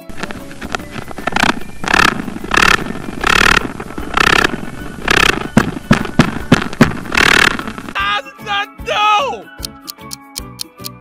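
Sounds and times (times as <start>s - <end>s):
sharp clicks: 0.0s - 8.0s.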